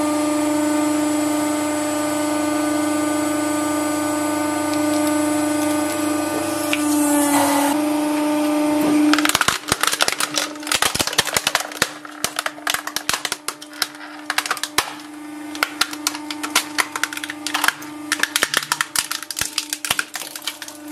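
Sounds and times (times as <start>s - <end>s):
hydraulic pump humming: 1.8s - 20.9s
plastic cracking and snapping: 4.7s - 6.0s, 9.1s - 20.9s.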